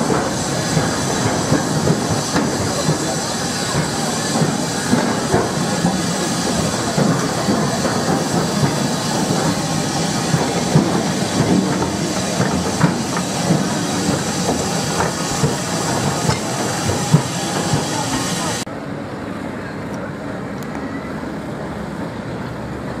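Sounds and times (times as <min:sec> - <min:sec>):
locomotive wheels clanking on rails: 0:00.0 - 0:18.7
steam hiss: 0:00.0 - 0:18.7.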